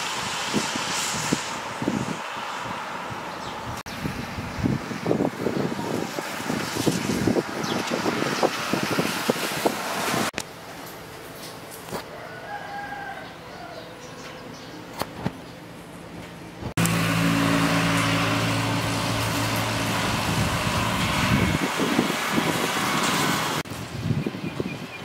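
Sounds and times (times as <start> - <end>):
loud rushing noise: 0.0 - 10.4, 16.6 - 23.9
vehicle engine humming: 13.3 - 23.7.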